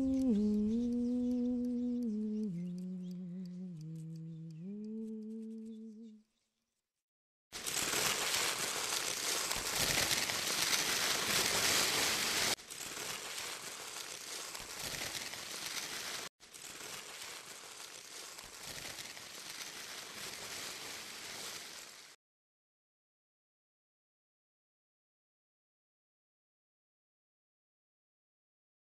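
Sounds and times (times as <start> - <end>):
paper crumpling and rustling: 7.6 - 22.2.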